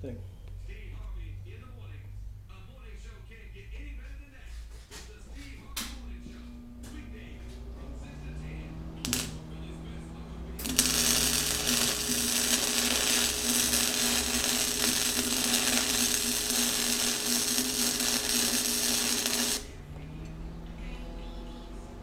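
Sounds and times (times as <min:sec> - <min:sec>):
welder hum: 0:05.7 - 0:22.0
arc welder crackling and hissing: 0:05.8 - 0:19.9.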